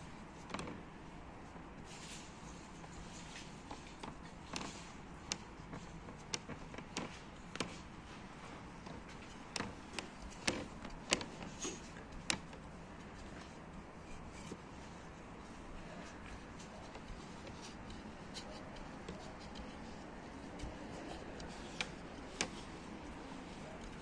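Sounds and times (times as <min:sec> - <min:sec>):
rolling pin rolling dough: 0:00.0 - 0:24.0.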